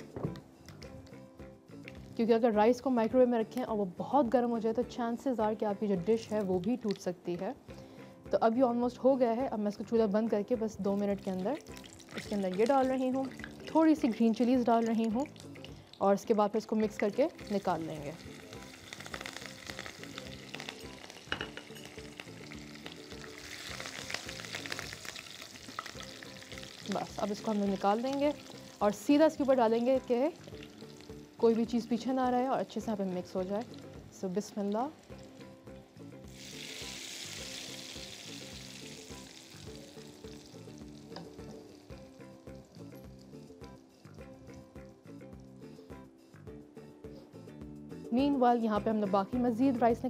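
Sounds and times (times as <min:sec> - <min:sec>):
background music with beat: 0:00.0 - 0:03.6, 0:17.4 - 0:27.4, 0:35.0 - 0:50.0
chillies sizzling in hot oil: 0:08.4 - 0:44.7.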